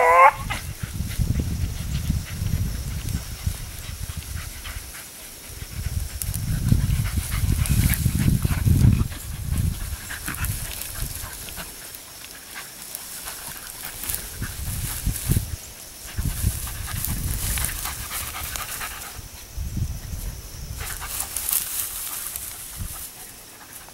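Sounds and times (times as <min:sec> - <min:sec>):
grass crackling: 0:00.0 - 0:23.9
dog panting: 0:00.6 - 0:14.7, 0:16.1 - 0:19.3.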